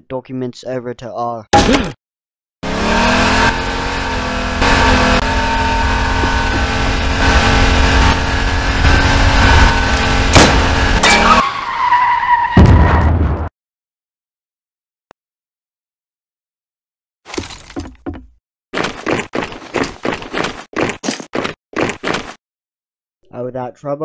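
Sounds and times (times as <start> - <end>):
jeep engine running: 2.6 - 11.4.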